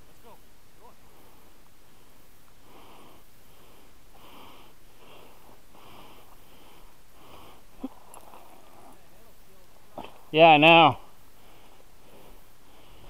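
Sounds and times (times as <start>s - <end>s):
heavy rhythmic breathing: 1.0s - 9.0s, 10.9s - 13.0s.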